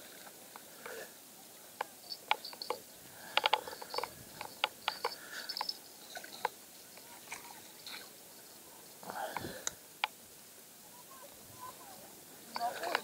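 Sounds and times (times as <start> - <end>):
light clicks and taps: 1.8 - 8.0.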